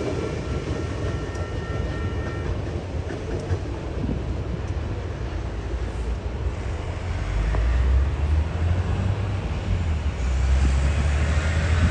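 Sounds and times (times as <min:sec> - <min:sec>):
diesel locomotive rumbling: 0:00.0 - 0:11.9.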